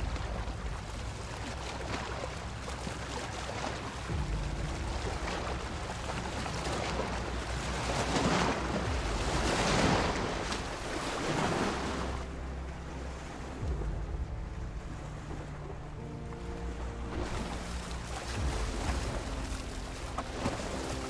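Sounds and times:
low steady hum: 0.0s - 21.0s
rushing wind-like noise: 4.0s - 16.5s.

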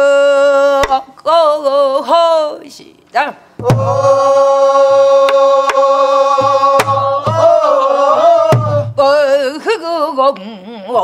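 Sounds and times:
barrel drum strokes and thuds: 3.6s - 4.2s, 6.4s - 9.0s
voices singing long note: 3.6s - 9.2s.

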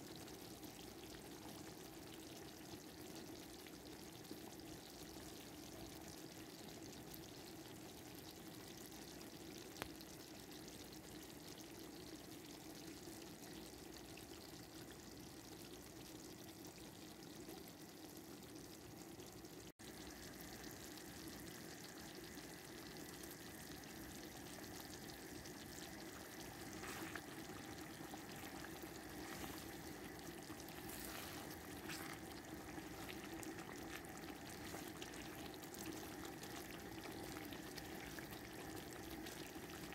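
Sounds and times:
sauce simmering and bubbling: 0.0s - 39.9s.

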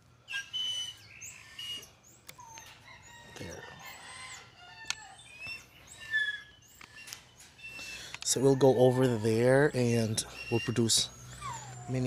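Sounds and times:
small birds chirping: 0.3s - 3.7s, 4.8s - 12.0s
rooster crowing: 2.8s - 5.2s, 8.3s - 9.7s.

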